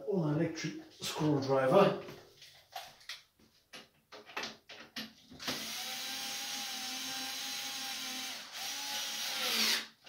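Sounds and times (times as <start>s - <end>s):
electric screwdriver running: 5.4s - 10.0s.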